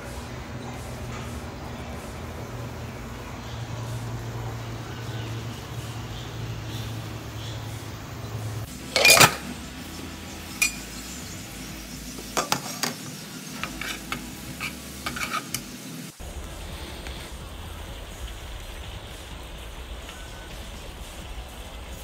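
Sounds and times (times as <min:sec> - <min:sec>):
meat sizzling in oil: 0:08.7 - 0:22.0
spatula scraping a wok: 0:12.5 - 0:15.9.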